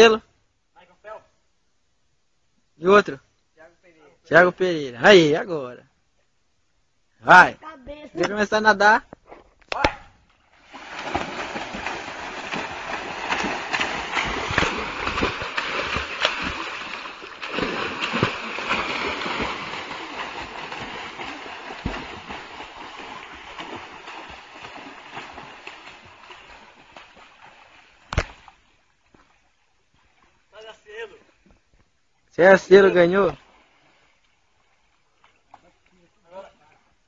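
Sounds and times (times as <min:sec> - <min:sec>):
sharp smack on water: 0:09.7 - 0:10.1, 0:13.3 - 0:16.7, 0:17.4 - 0:19.6, 0:20.6 - 0:22.4, 0:28.1 - 0:28.5
people swimming splashing water: 0:09.8 - 0:31.3, 0:32.7 - 0:37.0.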